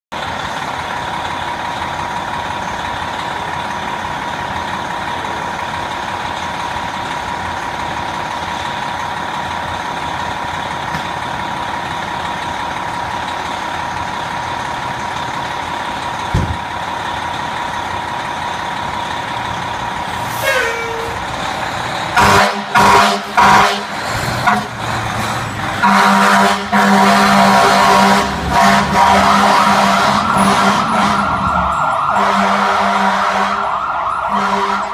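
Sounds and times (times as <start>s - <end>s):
diesel engine idling: 0.1s - 34.8s
fire engine horn blasts: 20.2s - 21.3s, 22.1s - 24.8s, 25.8s - 34.9s
steady high tone: 27.4s - 34.9s.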